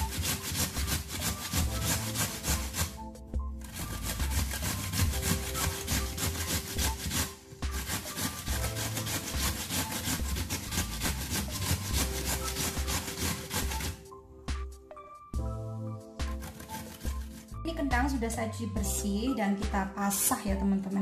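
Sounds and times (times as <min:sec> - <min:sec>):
potato grating on metal grater: 0:00.0 - 0:03.0, 0:03.6 - 0:14.1, 0:16.2 - 0:17.6.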